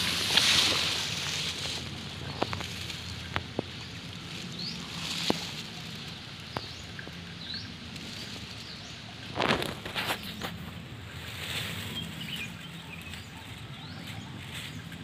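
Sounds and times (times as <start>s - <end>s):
rustling: 0.0s - 6.9s, 7.8s - 12.6s
bird chirps: 11.8s - 15.0s.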